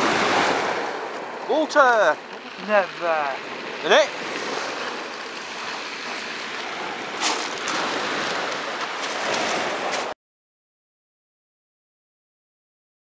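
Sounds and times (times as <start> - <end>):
sea waves washing at shore: 0.0 - 10.2.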